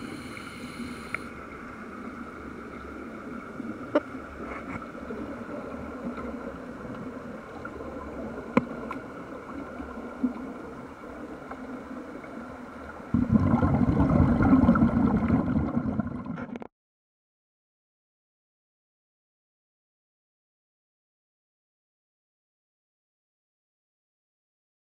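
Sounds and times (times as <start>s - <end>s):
underwater air bubbling: 3.3s - 16.6s.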